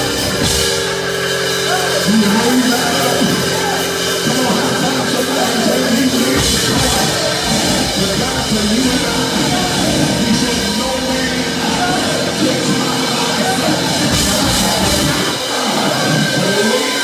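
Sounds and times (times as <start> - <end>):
live church band music with drums: 0.0 - 17.0
man speaking into a microphone: 1.5 - 15.1.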